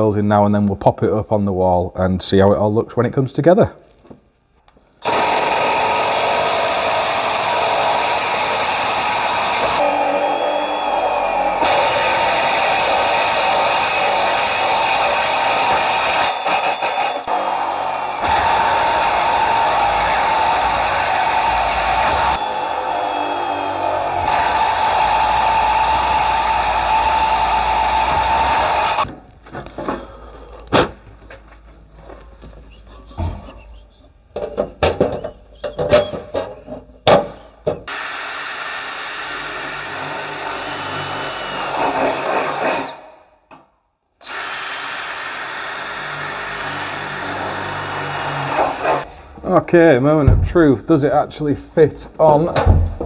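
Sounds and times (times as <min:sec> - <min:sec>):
drill hole cutter cutting steel: 0:05.0 - 0:29.1, 0:37.9 - 0:43.1, 0:44.2 - 0:49.1.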